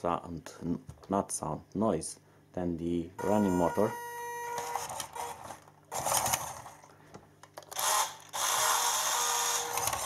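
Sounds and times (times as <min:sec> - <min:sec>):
toy steering motor buzzing: 0:03.5 - 0:06.8, 0:07.7 - 0:10.0.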